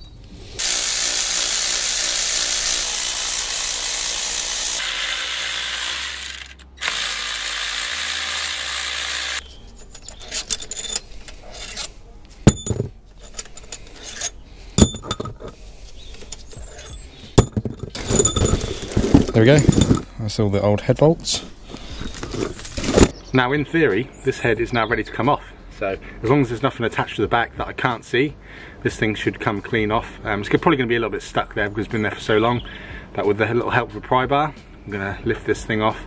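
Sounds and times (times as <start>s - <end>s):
power tool spinning bolts: 0.6s - 11.9s, 16.2s - 20.1s
sharp metallic clinks and knocks: 9.4s - 20.2s.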